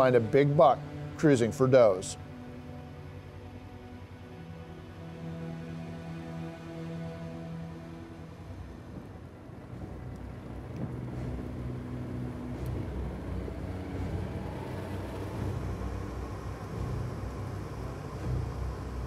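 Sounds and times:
vehicle engine running: 8.9s - 19.0s.

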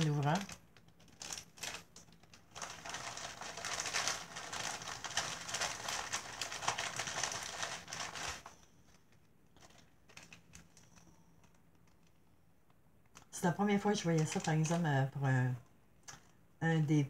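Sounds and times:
plastic bag crinkling: 0.0s - 12.2s, 13.9s - 15.1s.

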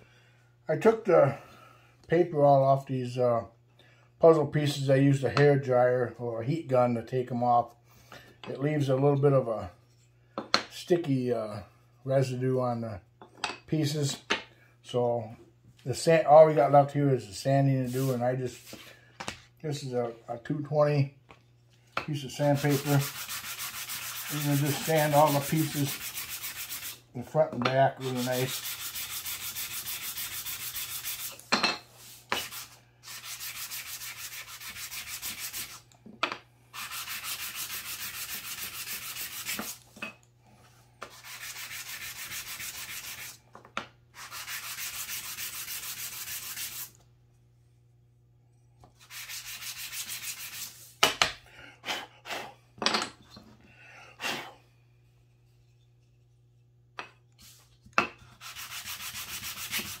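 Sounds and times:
wood rubbing on sandpaper: 17.8s - 18.8s, 22.2s - 27.0s, 27.9s - 31.4s, 32.0s - 35.8s, 36.8s - 39.8s, 41.0s - 43.4s, 44.2s - 47.0s, 49.0s - 50.9s, 57.4s - 60.0s.

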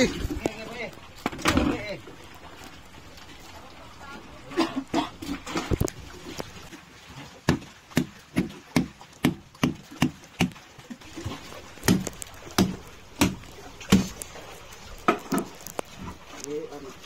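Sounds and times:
knife chopping onto wooden block: 11.8s - 14.2s.

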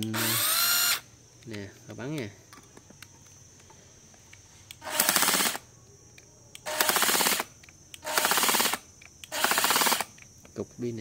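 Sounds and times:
impact driver pulsing: 4.8s - 5.6s, 6.7s - 7.4s, 8.0s - 10.1s.

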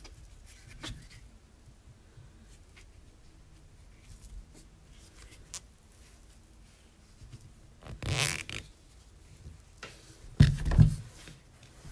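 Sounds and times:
rubber part rubbing scrape: 7.8s - 8.7s.

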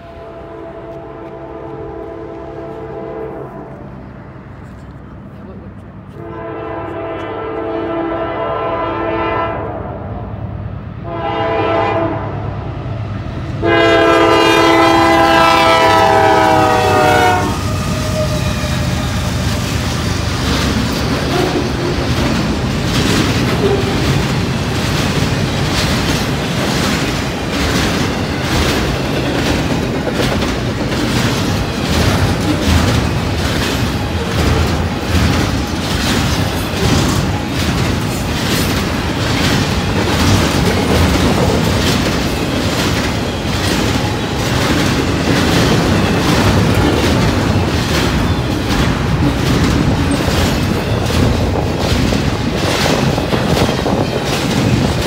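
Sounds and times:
locomotive air horn blasts: 0.0s - 3.9s, 6.1s - 10.1s, 11.0s - 12.4s, 13.6s - 19.5s
train cars rumbling: 0.0s - 55.0s
wheels clattering over rail joints: 18.4s - 55.0s.

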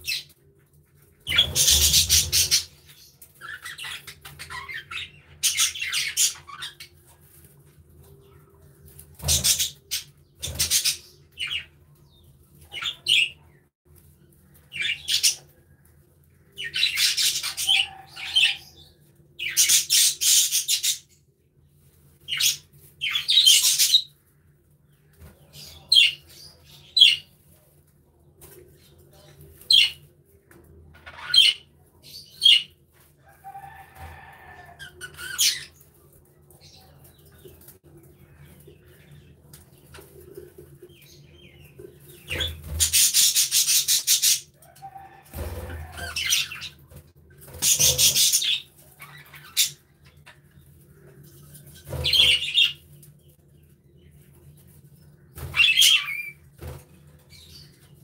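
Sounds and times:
budgerigars chirping and chattering: 1.3s - 6.9s, 9.2s - 11.7s, 14.7s - 15.5s, 16.6s - 21.1s, 22.3s - 24.1s, 34.8s - 35.8s, 41.0s - 44.5s, 45.4s - 46.8s, 47.5s - 52.8s, 55.4s - 56.4s.

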